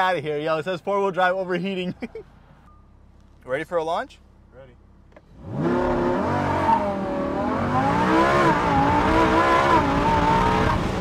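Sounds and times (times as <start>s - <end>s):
car engine accelerating hard: 5.2s - 11.0s.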